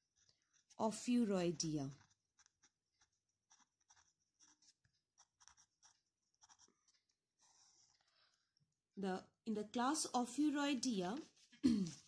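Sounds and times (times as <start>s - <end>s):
pen scratching on paper: 0.0s - 8.0s.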